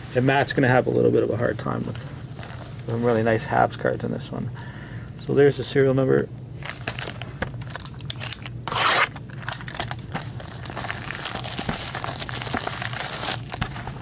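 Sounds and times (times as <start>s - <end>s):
plastic wrap tearing: 6.6s - 14.0s
rubbing plastic wrap and cardboard: 10.1s - 14.0s.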